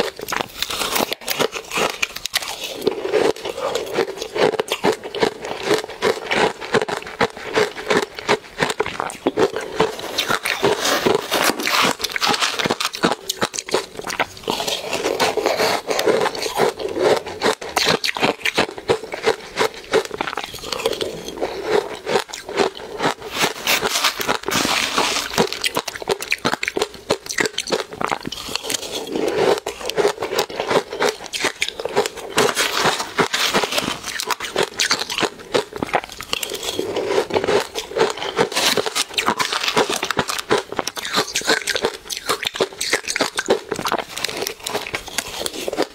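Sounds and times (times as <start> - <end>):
crunching ice chewing: 0.0 - 45.9
metal spoon scraping ice: 0.0 - 45.9.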